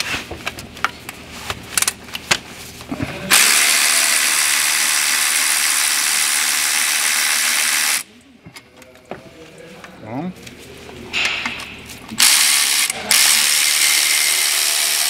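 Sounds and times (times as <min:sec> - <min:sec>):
electric ratchet running: 0:03.3 - 0:08.1, 0:12.2 - 0:15.0.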